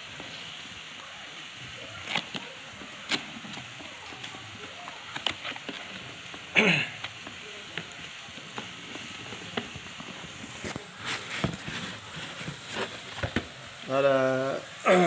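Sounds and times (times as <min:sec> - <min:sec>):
plastic wrap crinkling: 0:01.7 - 0:15.0
cardboard box clicks and rustles: 0:07.8 - 0:13.7
cardboard scrape: 0:08.7 - 0:13.6.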